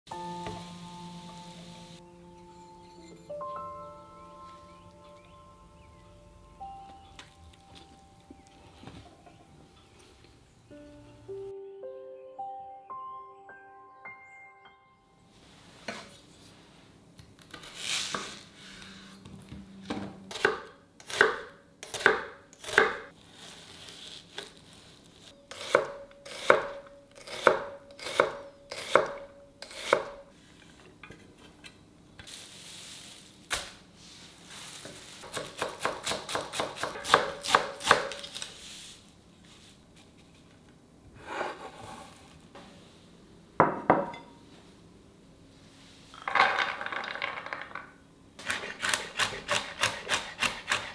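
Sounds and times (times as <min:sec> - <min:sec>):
knife chopping on cutting board: 0:35.2 - 0:38.3, 0:48.4 - 0:50.9.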